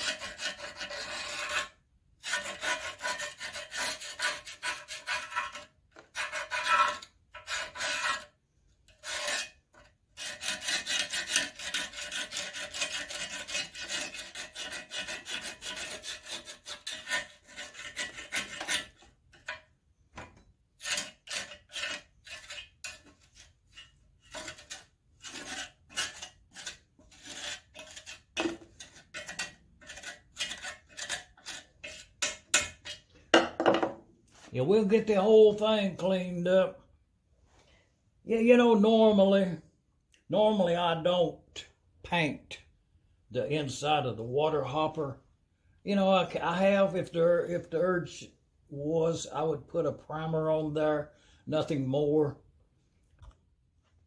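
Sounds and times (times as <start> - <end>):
metal tool scraping rust: 0.0 - 33.9.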